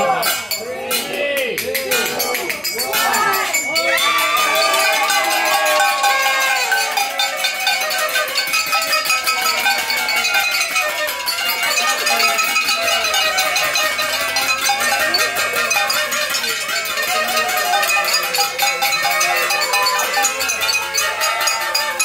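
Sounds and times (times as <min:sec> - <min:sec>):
party horns blowing: 0:04.6 - 0:22.0.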